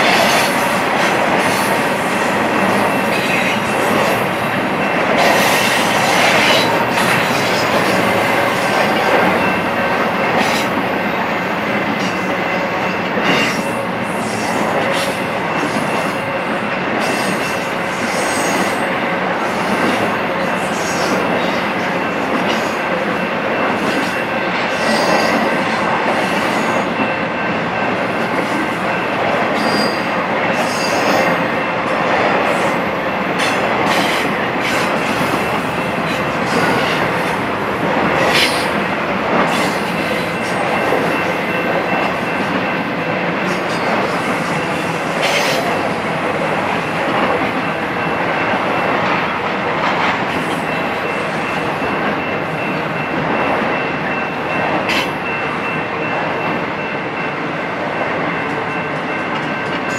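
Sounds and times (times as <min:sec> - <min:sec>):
steel wheels rolling on rail: 0:00.0 - 0:59.9.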